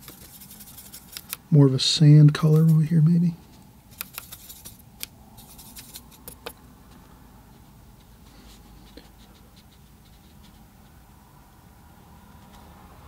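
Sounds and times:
brush scratching on paper: 0:00.0 - 0:01.4, 0:02.4 - 0:03.0, 0:03.9 - 0:04.8, 0:05.4 - 0:06.4, 0:08.0 - 0:10.7
paintbrush clicking on plastic palette: 0:00.0 - 0:01.4, 0:03.9 - 0:06.6.

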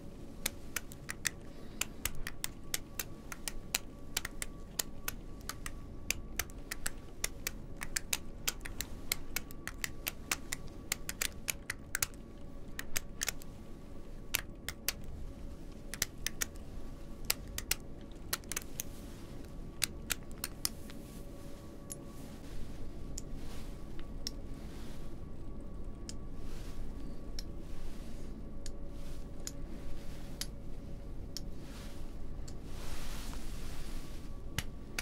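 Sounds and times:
click pens clicking: 0:00.4 - 0:13.5, 0:14.3 - 0:15.1, 0:15.8 - 0:16.6, 0:17.2 - 0:18.9, 0:19.8 - 0:20.8.

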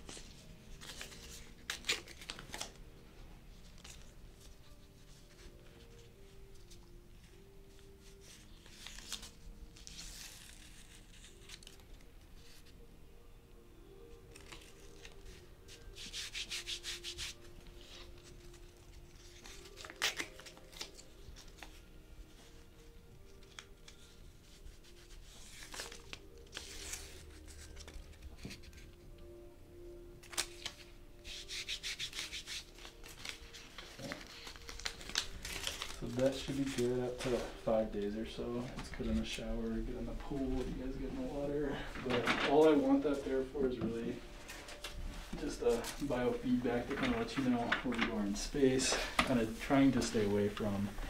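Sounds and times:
backing paper peeling and tearing: 0:00.7 - 0:02.8, 0:08.2 - 0:12.0, 0:14.3 - 0:15.4, 0:16.0 - 0:21.8, 0:23.4 - 0:28.8, 0:30.2 - 0:38.2
tape rubbed onto skin: 0:15.7 - 0:18.0, 0:31.2 - 0:37.4.

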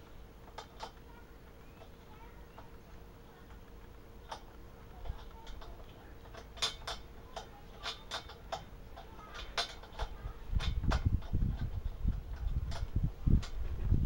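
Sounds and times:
wrench clicking against metal: 0:05.1 - 0:13.6.

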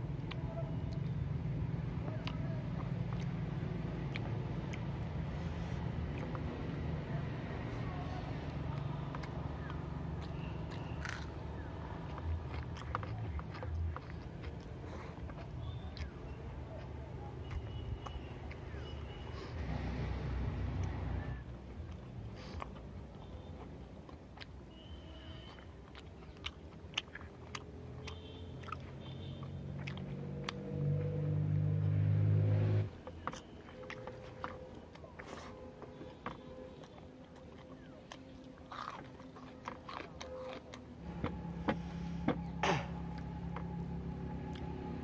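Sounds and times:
close-up chewing with wet smacks: 0:00.0 - 0:31.6, 0:32.9 - 0:45.0
sharp mouth clicks: 0:02.1 - 0:06.5, 0:24.1 - 0:30.7
low steady hum: 0:30.2 - 0:45.0.

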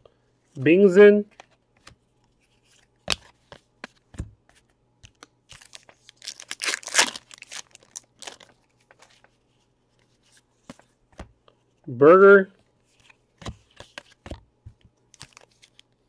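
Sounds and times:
wrapper tearing and crinkling: 0:05.5 - 0:08.6
cards clicking and tapping: 0:13.0 - 0:15.8.

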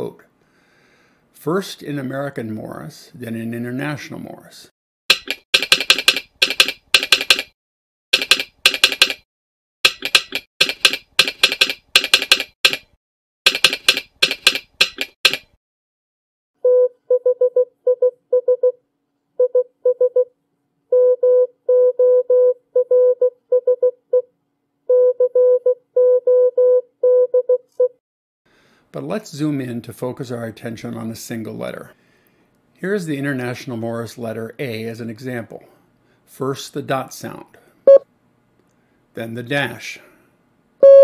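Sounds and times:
morse code beeps: 0:16.6 - 0:18.8, 0:19.4 - 0:20.3, 0:20.9 - 0:24.2, 0:24.9 - 0:27.9.

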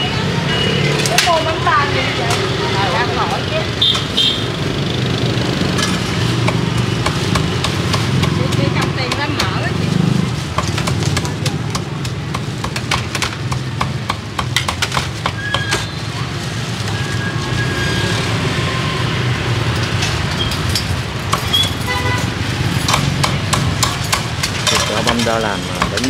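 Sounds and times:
street traffic rumble: 0:00.0 - 0:26.0
cleaver chopping on wooden board: 0:10.5 - 0:15.8, 0:22.8 - 0:25.2.

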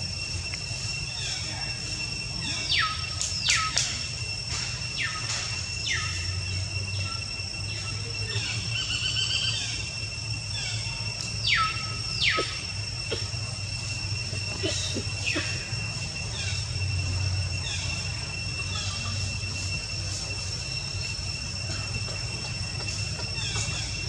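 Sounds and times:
high-pitched drone: 0:00.0 - 0:24.0.

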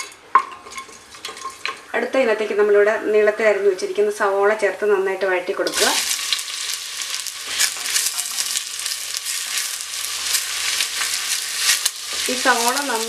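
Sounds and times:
onions sizzling in oil: 0:03.5 - 0:13.0.

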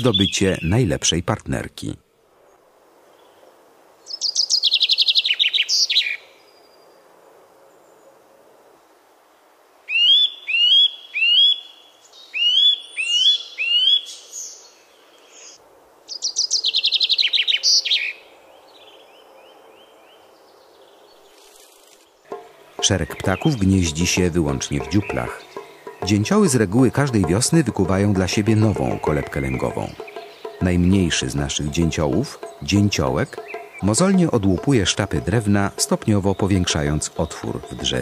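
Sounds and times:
chaffinch trilled song: 0:22.3 - 0:38.0.

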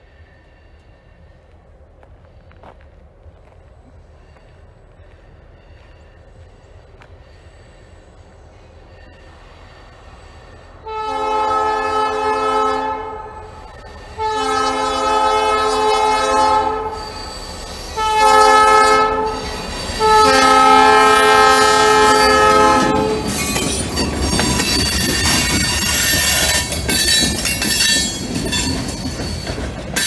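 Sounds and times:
train wheels clattering and squealing: 0:04.2 - 0:10.8, 0:13.5 - 0:14.3, 0:16.9 - 0:18.2, 0:19.2 - 0:20.6, 0:22.1 - 0:30.0
diesel locomotive horn blasts: 0:10.8 - 0:23.6.

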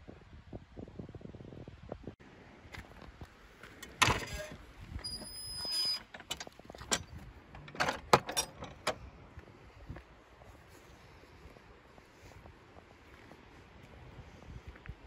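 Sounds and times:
gate hinge scraping and squeaking: 0:04.0 - 0:08.8
metal gate latch clacking: 0:06.0 - 0:09.0.

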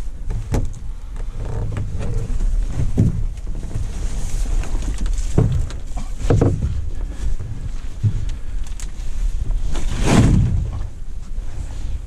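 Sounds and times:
low steady rumble: 0:00.0 - 0:12.0
hollow thumps on canoe hull: 0:00.2 - 0:03.6, 0:05.2 - 0:07.1.

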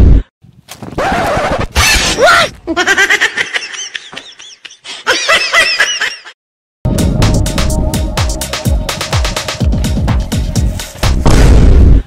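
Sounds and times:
person laughing: 0:02.3 - 0:06.4.

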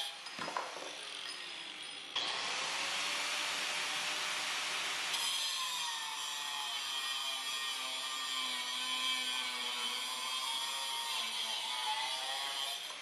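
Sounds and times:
angle grinder cutting steel: 0:00.0 - 0:13.0.

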